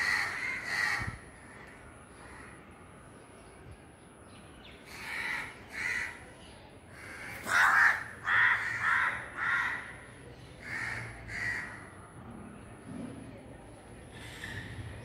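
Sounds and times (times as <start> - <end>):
crows cawing: 0.0 - 2.6, 4.9 - 6.2, 6.9 - 11.9.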